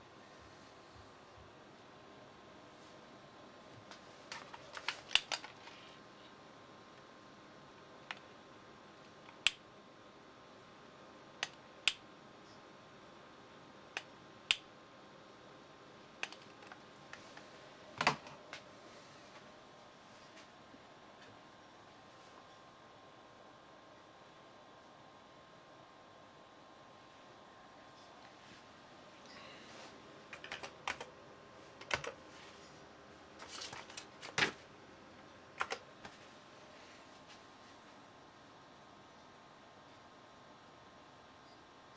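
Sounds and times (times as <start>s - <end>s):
keyboard keys clicking: 30.3s - 31.1s, 31.8s - 32.2s, 35.6s - 35.9s.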